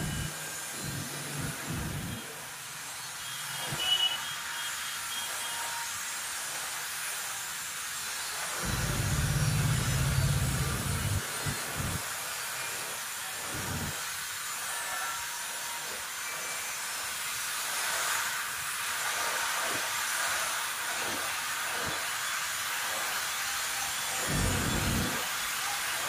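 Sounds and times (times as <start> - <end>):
room noise hiss: 0.0 - 3.5, 6.6 - 14.4.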